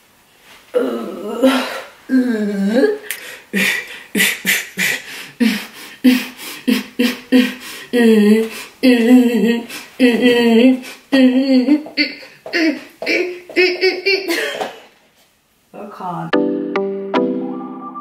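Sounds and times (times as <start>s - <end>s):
woman singing and beatboxing: 6.8s - 14.3s.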